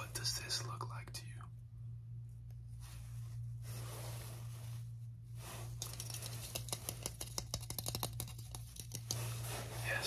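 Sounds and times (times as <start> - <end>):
low hum: 0.0 - 10.0
tapping and scratching plastic: 5.8 - 9.4.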